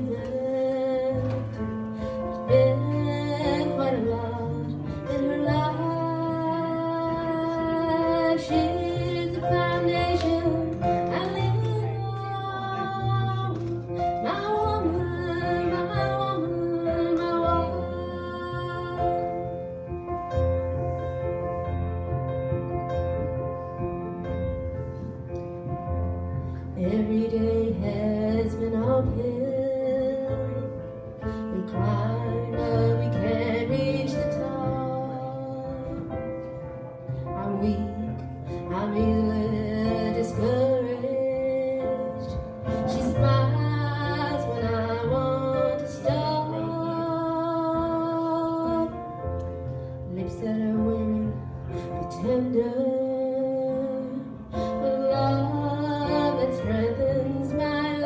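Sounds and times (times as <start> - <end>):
woman singing country ballad: 0.0 - 1.8, 2.4 - 19.5, 26.8 - 30.8, 31.5 - 36.2, 37.4 - 49.0, 50.1 - 51.5, 52.1 - 58.0.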